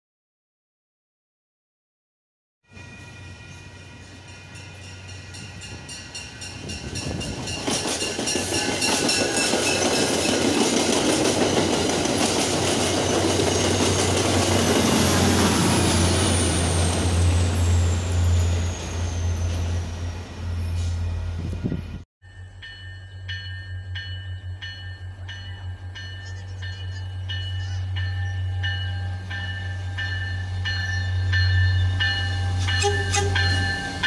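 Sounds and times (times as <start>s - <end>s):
diesel locomotive engine drone: 2.7s - 34.0s
train clattering over rail joints: 5.7s - 15.9s.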